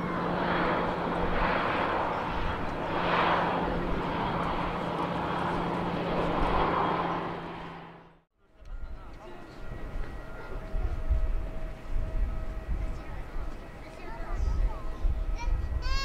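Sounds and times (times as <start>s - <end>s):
jet engines rushing: 0.0s - 8.2s.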